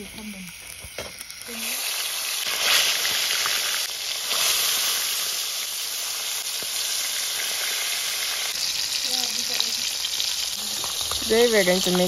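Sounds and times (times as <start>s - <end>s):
fish sizzling in hot oil: 0.0s - 12.0s.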